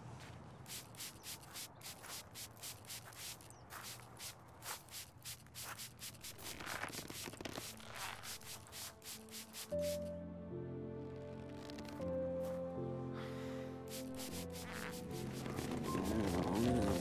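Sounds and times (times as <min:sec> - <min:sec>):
spray bottle hissing: 0:00.7 - 0:10.1, 0:13.8 - 0:17.0.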